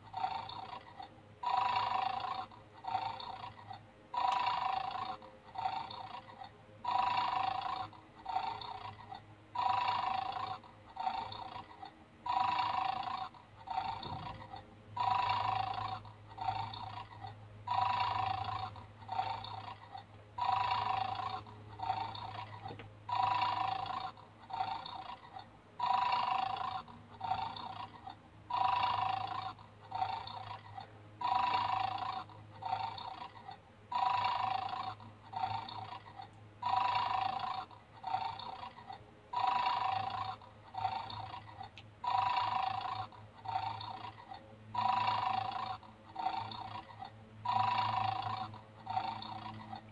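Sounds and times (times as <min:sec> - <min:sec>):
faint low hum: 0:00.0 - 0:49.9
toy electronic snoring: 0:00.0 - 0:49.9.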